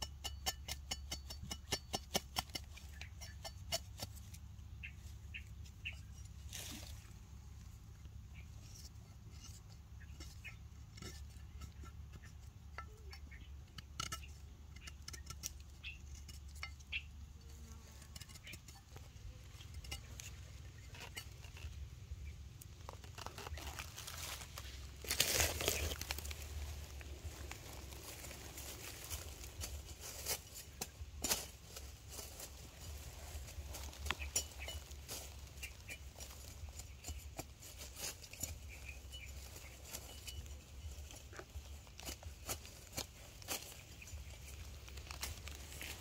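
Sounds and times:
dry leaves and twigs rustling: 0.1 - 46.0.

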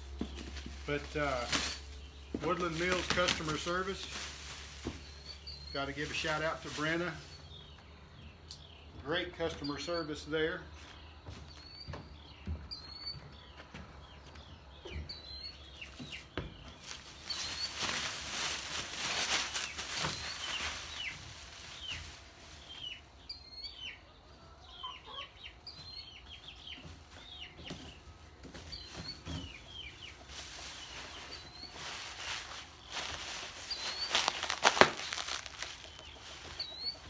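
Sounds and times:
chickens clucking and peeping: 0.0 - 37.0
cardboard and plastic rustling: 0.1 - 5.3, 16.7 - 22.3, 28.4 - 37.0.

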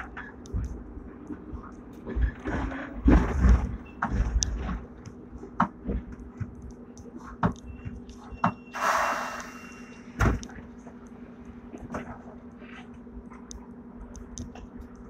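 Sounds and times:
tram cabin low hum: 0.0 - 15.0
burst of hiss: 8.8 - 10.1.

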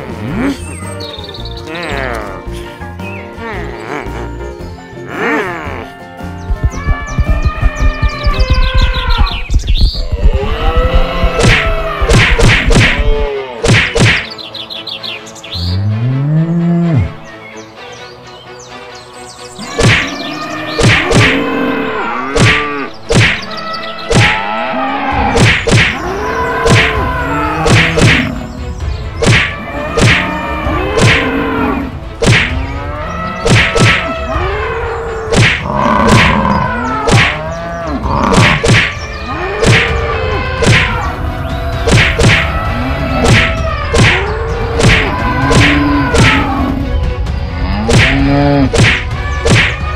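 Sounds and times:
low rumble: 6.5 - 12.1
cartoon whacks and thuds: 11.3 - 14.3, 19.7 - 20.1, 20.8 - 21.3, 22.3 - 23.5, 24.1 - 24.4, 25.3 - 26.0, 26.6 - 27.0, 27.6 - 28.3, 29.2 - 30.3, 31.0 - 31.3, 32.2 - 32.6, 33.4 - 34.1, 35.3 - 36.4, 37.0 - 37.4, 38.3 - 39.0, 39.6 - 40.0, 40.6 - 40.9, 41.8 - 42.5, 43.2 - 46.4, 47.9 - 49.8
bellowing animal calls: 19.6 - 23.0, 23.7 - 28.6, 29.6 - 47.0.

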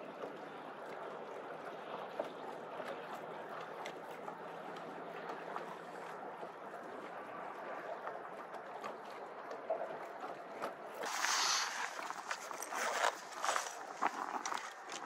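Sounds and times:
small splashes: 0.0 - 15.0
water lapping against boat hull: 0.0 - 15.0.

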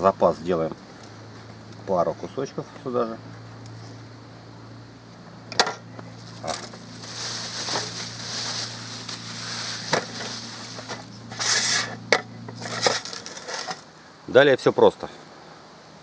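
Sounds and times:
steady low hum: 0.0 - 16.0
plastic bag crinkling: 6.1 - 11.4, 12.6 - 13.8.

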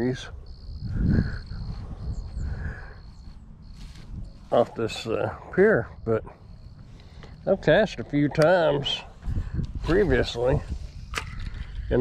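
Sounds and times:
wind rumble on microphone: 0.0 - 4.7, 7.7 - 12.0
faint insect trill: 0.0 - 9.2.

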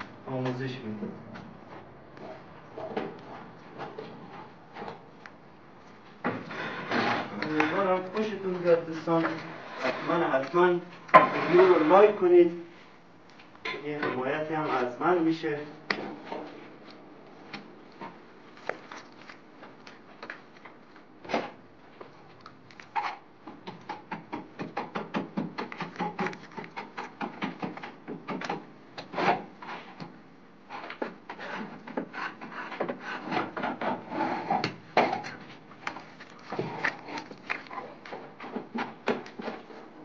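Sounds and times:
steel trowel scraping plaster: 11.3 - 12.2.

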